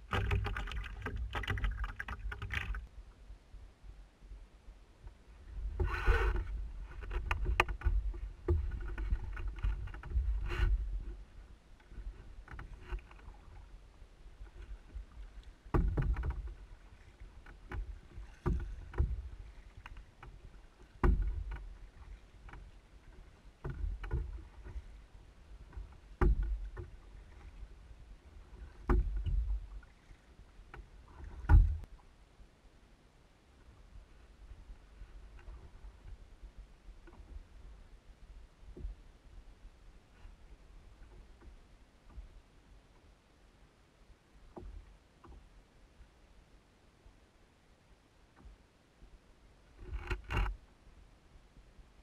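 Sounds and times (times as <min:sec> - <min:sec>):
paddle splashing water: 0:00.0 - 0:02.9, 0:05.1 - 0:32.1
low thump through hull: 0:05.0 - 0:13.7, 0:14.4 - 0:25.0, 0:25.6 - 0:32.0, 0:38.6 - 0:39.5, 0:44.5 - 0:45.5.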